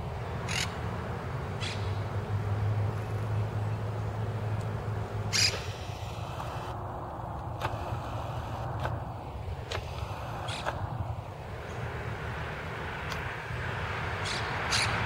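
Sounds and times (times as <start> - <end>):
parakeet squawking: 0.5 - 0.7, 5.3 - 5.8, 14.2 - 15.0
steady low rumble: 4.3 - 15.0.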